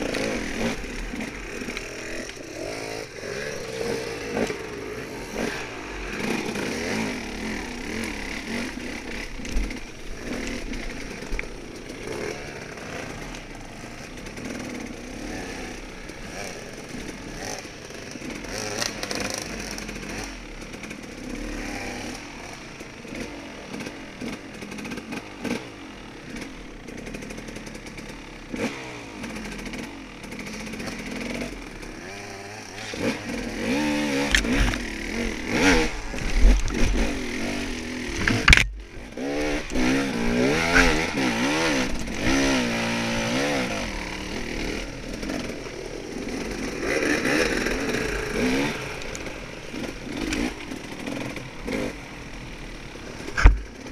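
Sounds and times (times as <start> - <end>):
dirt bike engine revving: 0.0 - 53.9
sharp knocks and clatter: 35.5 - 39.0, 53.3 - 53.9.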